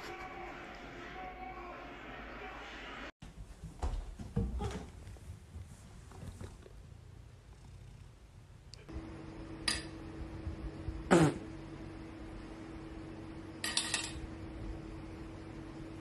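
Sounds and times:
steady low hum: 0:05.0 - 0:16.0
rings clinking on a table: 0:13.6 - 0:14.2.

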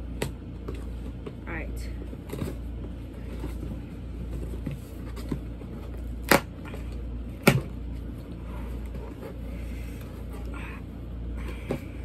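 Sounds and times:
sharp cardboard snaps: 0:06.2 - 0:06.5.

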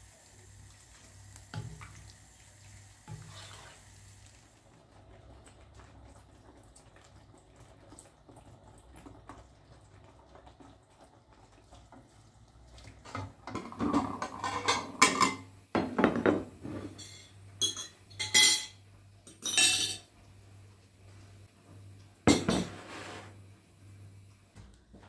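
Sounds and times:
dishes and cutlery clattering: 0:13.2 - 0:20.1.

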